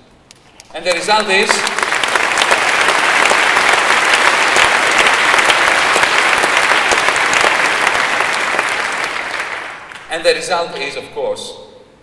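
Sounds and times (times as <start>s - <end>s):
audience applauding: 0.6s - 10.2s.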